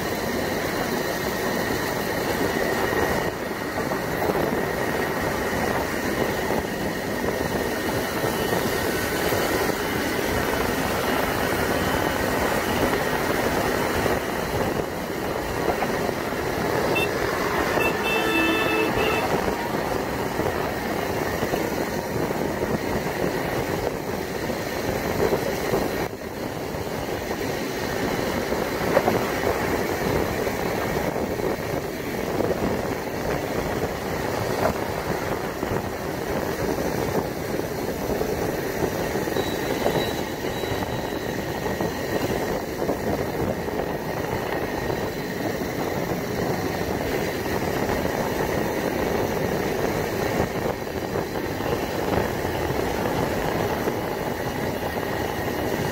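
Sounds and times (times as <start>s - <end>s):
wind rushing over microphone: 0.0s - 55.9s
motorcycle engine: 3.2s - 24.5s.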